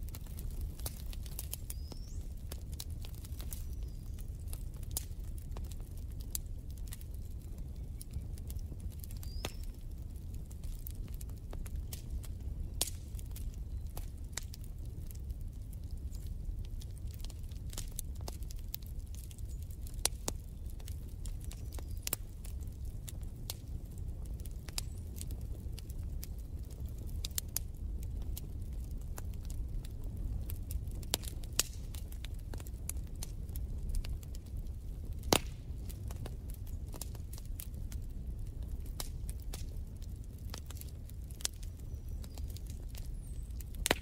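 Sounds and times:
fire popping: 0:00.0 - 0:44.0
wood fire crackling: 0:00.0 - 0:44.0.

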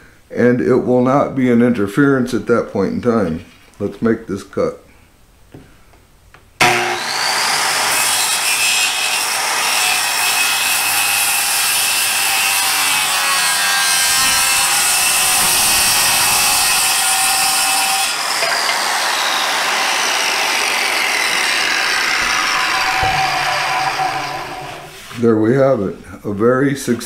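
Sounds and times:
circular saw cutting wood: 0:06.6 - 0:25.2.

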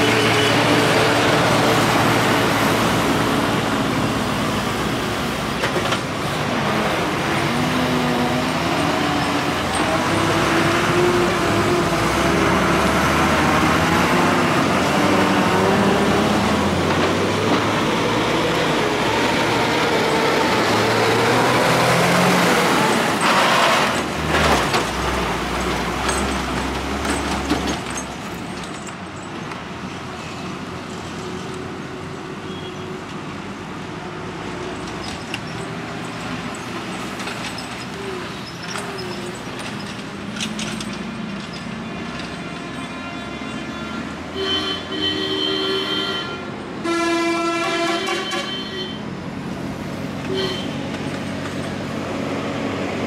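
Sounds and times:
diesel bus and truck engines: 0:00.0 - 0:53.0.

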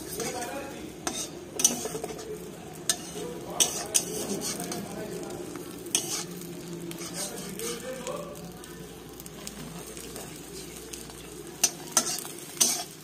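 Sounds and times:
spatula scraping a steel pan: 0:00.0 - 0:02.2, 0:02.9 - 0:04.9, 0:05.9 - 0:07.8, 0:11.6 - 0:13.0
omelette sizzling in oil: 0:00.0 - 0:13.0.

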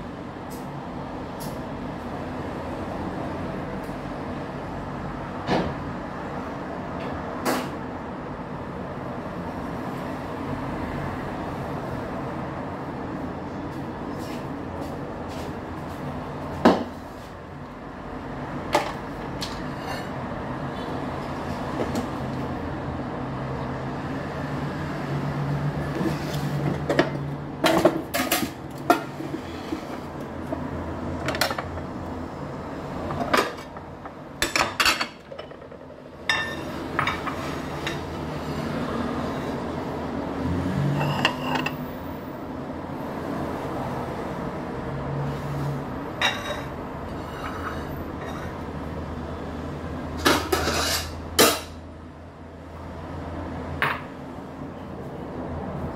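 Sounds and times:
steady background hum: 0:00.0 - 0:55.9
dishes and utensils clinking: 0:34.4 - 0:38.8, 0:40.9 - 0:41.8, 0:46.2 - 0:48.6, 0:50.2 - 0:51.8.

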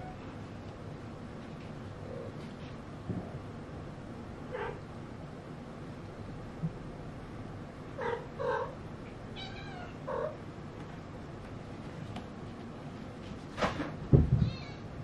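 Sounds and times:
loud knock and thump: 0:13.6 - 0:14.6.

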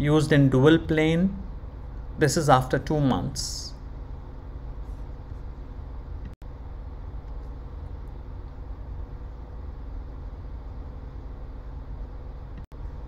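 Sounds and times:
faint hum: 0:00.0 - 0:13.0
low background rumble: 0:00.0 - 0:13.0.

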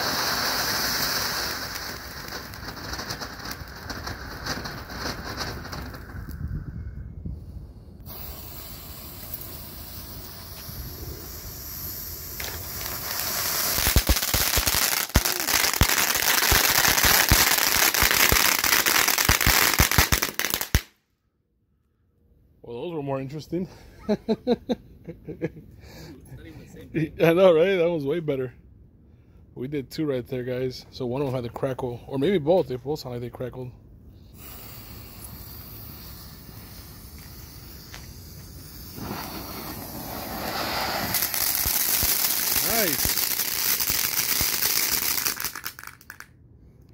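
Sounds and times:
firework fountain hissing: 0:00.0 - 0:06.4, 0:08.0 - 0:20.9, 0:34.3 - 0:46.3
firework crackling pops: 0:00.0 - 0:06.5, 0:08.0 - 0:21.0, 0:34.4 - 0:46.3.

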